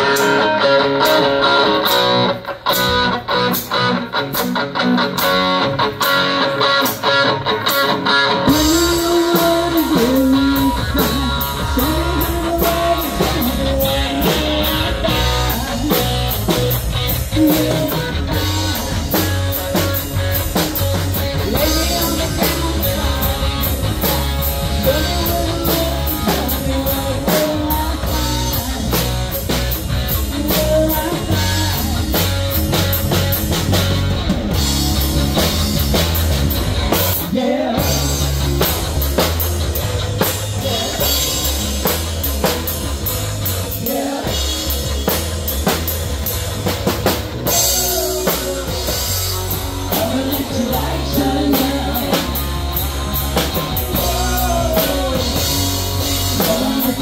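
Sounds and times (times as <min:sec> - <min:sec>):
drum kit beat: 0:00.0 - 0:57.0
electric bass: 0:00.0 - 0:57.0
electric guitar lead lines: 0:00.0 - 0:57.0
woman singing: 0:08.6 - 0:16.0, 0:30.4 - 0:32.0, 0:49.9 - 0:52.3.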